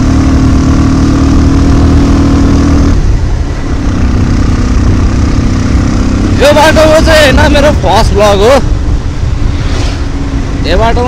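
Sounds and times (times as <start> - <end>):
motorcycle engine running: 0.0 - 11.0
heavy low rumble: 2.8 - 11.0.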